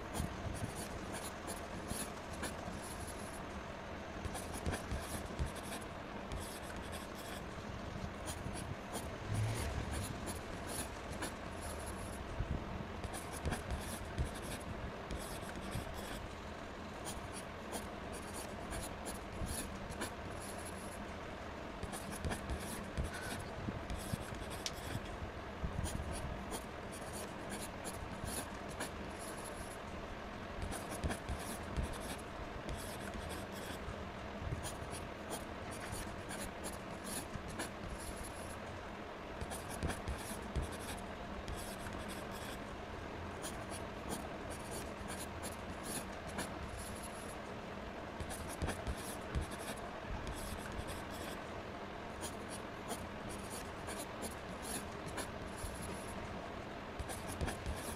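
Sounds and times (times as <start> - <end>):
marker scratching on paper: 4.3 - 7.4, 39.4 - 42.6, 48.2 - 51.4, 57.0 - 57.9.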